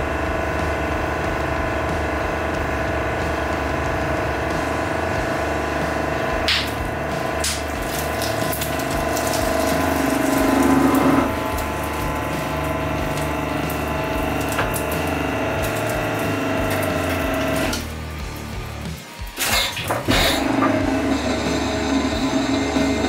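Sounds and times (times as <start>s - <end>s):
hydraulic pump hum: 0.0s - 23.0s
crunching under press: 6.5s - 18.6s.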